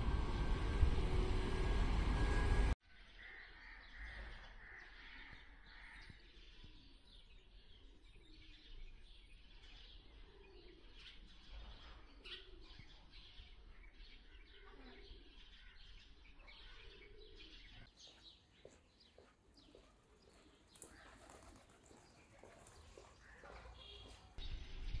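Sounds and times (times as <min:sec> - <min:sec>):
loud road traffic: 0:00.0 - 0:02.8
faint outdoor ambience: 0:00.0 - 0:25.0
small birds chirping: 0:03.2 - 0:25.0.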